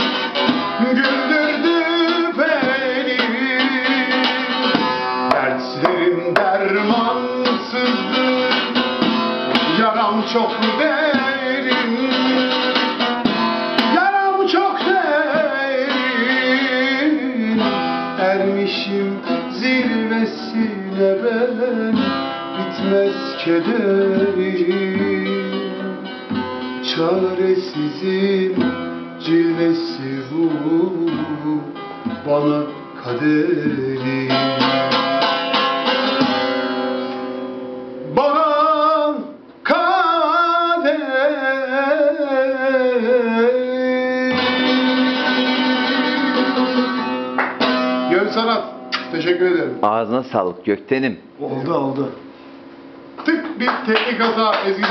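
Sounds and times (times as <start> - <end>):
man singing: 0.0 - 8.8, 9.5 - 12.8, 13.8 - 26.1, 26.8 - 35.2, 38.0 - 47.0
long-necked lute strummed and picked: 0.0 - 38.4, 40.7 - 49.3.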